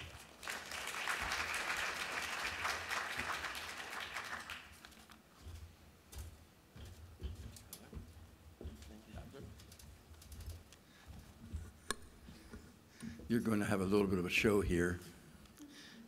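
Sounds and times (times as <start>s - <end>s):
audience applauding: 0.0s - 5.2s
faint clicks and knocks: 4.9s - 13.3s.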